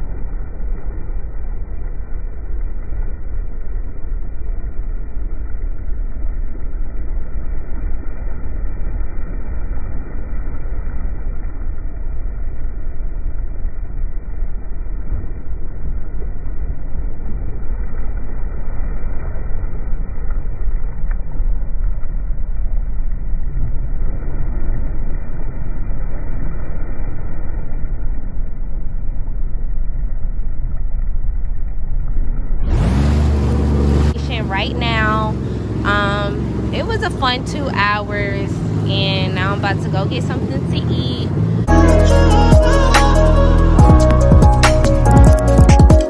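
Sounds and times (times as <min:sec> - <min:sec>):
jet ski engine rumble: 0:00.0 - 0:46.0
water rushing and spray: 0:32.6 - 0:42.1.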